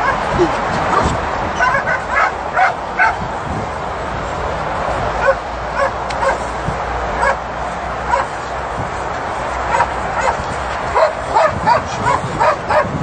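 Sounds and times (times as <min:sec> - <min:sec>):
dog yelping barks: 0:00.0 - 0:03.2, 0:05.2 - 0:06.5, 0:07.2 - 0:07.4, 0:08.1 - 0:08.4, 0:09.7 - 0:13.0.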